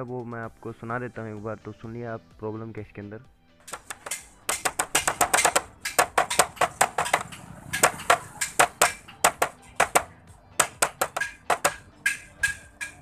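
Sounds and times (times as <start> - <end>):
plastic cowl rattling: 3.7 - 11.8.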